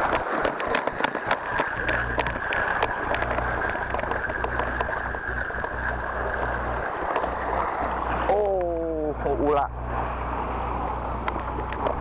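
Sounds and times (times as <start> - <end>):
wind buffeting microphone: 0.0 - 8.3
fishing reel whirring: 0.0 - 9.7
sea washing against rocks: 0.0 - 12.0.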